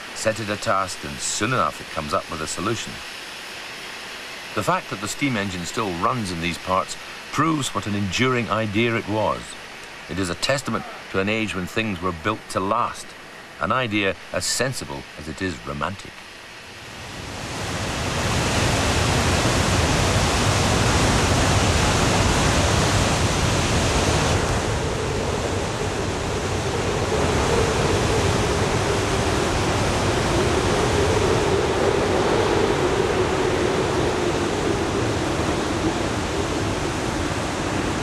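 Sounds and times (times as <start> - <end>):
waterfall rushing: 0.0 - 38.0.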